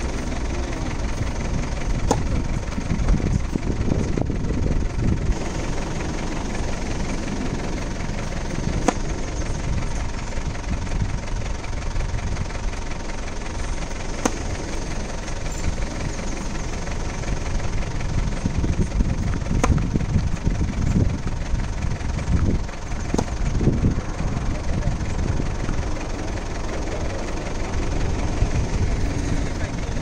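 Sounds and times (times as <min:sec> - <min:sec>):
wind rumble on microphone: 0:00.0 - 0:12.8, 0:14.4 - 0:26.4, 0:27.0 - 0:30.0
tennis racket hitting ball: 0:01.2 - 0:02.9, 0:08.4 - 0:09.3, 0:14.1 - 0:15.4, 0:19.4 - 0:20.0, 0:23.1 - 0:23.4.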